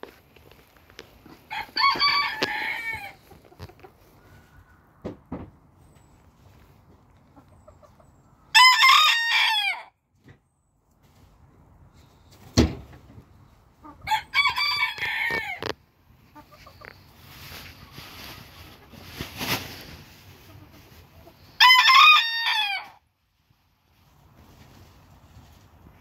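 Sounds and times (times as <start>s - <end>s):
rustling noise: 0.0s - 4.7s, 5.5s - 7.5s, 10.9s - 13.5s, 14.8s - 21.5s, 23.3s - 26.0s
rooster crowing: 1.5s - 3.2s, 8.5s - 9.9s, 14.1s - 15.6s, 21.6s - 23.0s.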